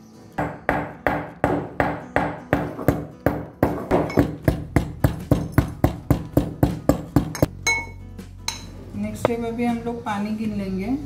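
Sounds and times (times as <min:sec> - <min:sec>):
metal pestle pounding in mortar: 0:00.4 - 0:07.9.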